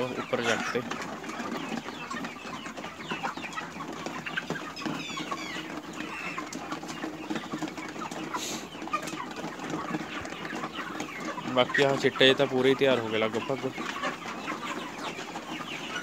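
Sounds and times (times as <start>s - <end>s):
chicks clucking and chirping: 0.0s - 16.0s.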